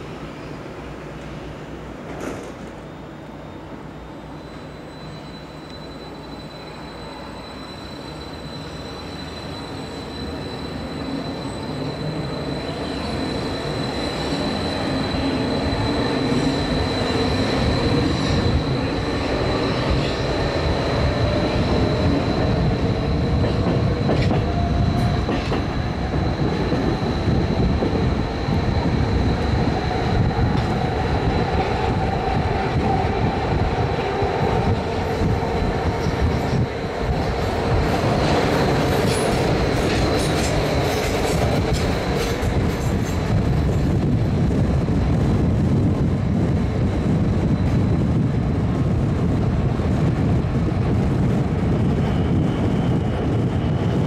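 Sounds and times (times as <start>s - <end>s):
train wheels rumbling on rails: 0.0s - 2.9s, 4.9s - 54.0s
train passing: 0.0s - 54.0s
rail-joint clicks: 2.0s - 2.8s, 23.4s - 25.8s, 37.8s - 43.9s.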